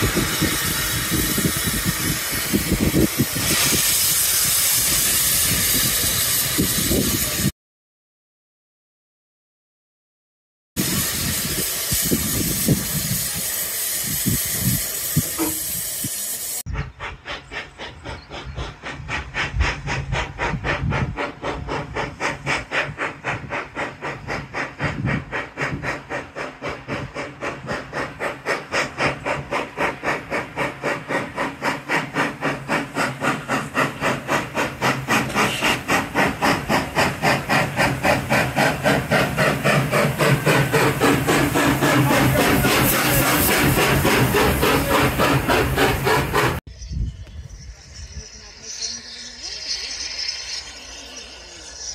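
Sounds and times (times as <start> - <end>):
steam locomotive hissing: 0.0 - 7.5, 10.8 - 51.9
locomotive exhaust chuffs: 10.8 - 51.9.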